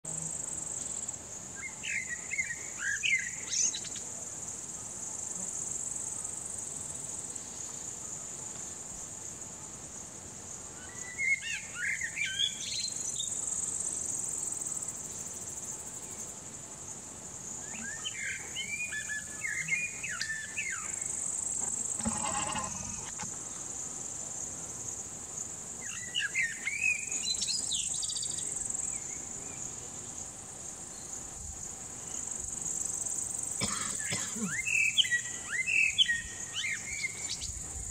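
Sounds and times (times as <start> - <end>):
high-pitched insect buzz: 17.4 - 29.8.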